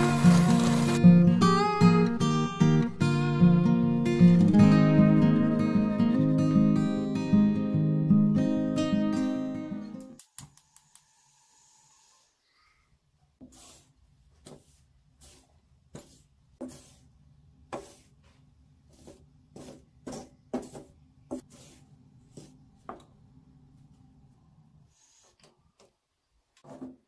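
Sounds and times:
spatula scraping flour in metal wok: 14.6s - 17.1s.

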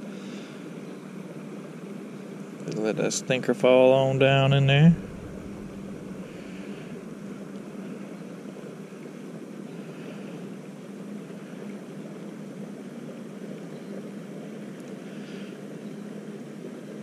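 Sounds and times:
boat motor humming: 3.5s - 8.7s.

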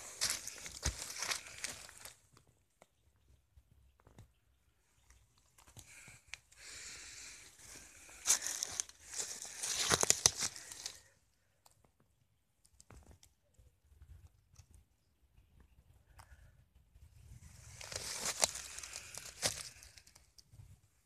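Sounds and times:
dry leaves rustling and crackling: 0.0s - 2.1s, 8.0s - 11.0s, 17.8s - 20.0s.

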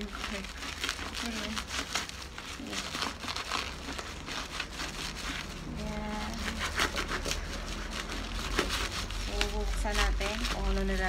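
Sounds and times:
bubble wrap crinkling: 0.0s - 11.0s.

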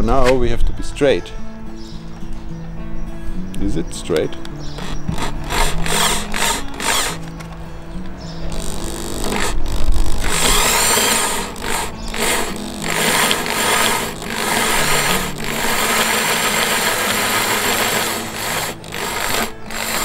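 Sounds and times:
power drill grinding fiberglass: 4.8s - 7.3s, 8.5s - 20.0s.

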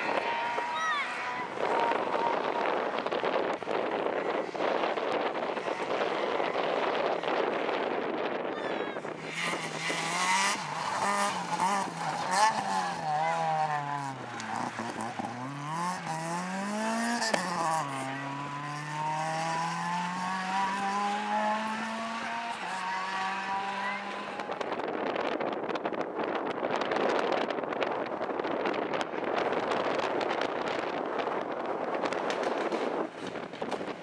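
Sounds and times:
rally car engine revving: 0.0s - 8.3s, 9.0s - 25.4s.

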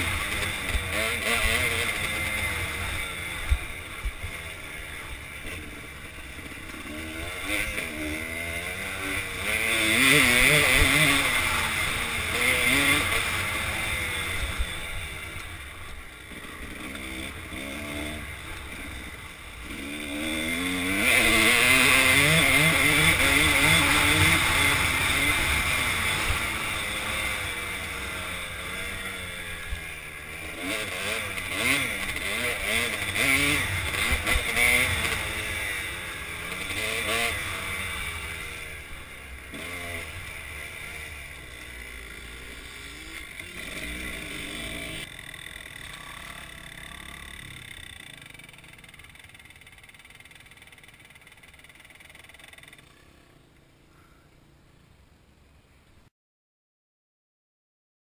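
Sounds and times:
dirt bike engine revving: 0.0s - 53.4s.

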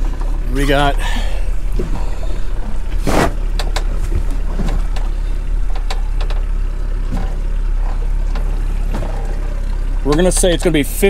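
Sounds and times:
outboard motors idling: 0.0s - 11.0s
light clicks and knocks: 3.4s - 10.9s.

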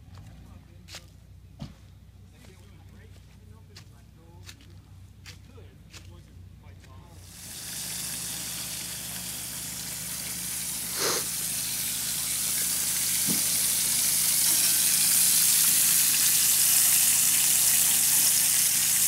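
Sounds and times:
bacon sizzling in a frying pan: 7.3s - 19.0s.

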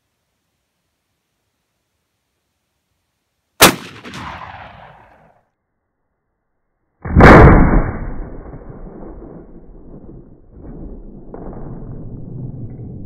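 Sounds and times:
shotgun shots echoing: 3.6s - 5.3s.

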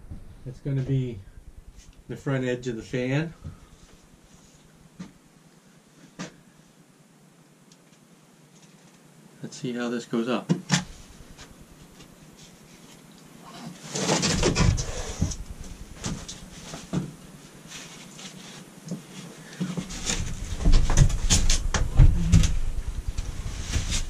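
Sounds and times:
wooden board scraping and knocking: 19.8s - 24.0s.

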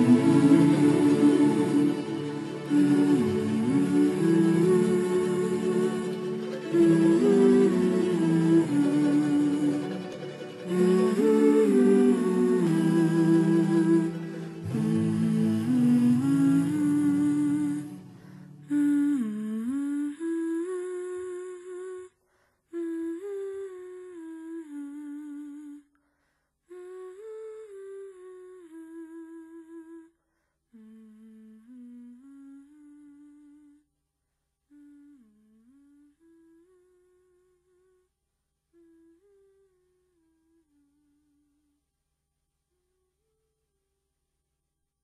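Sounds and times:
hummed melody: 0.0s - 22.1s.

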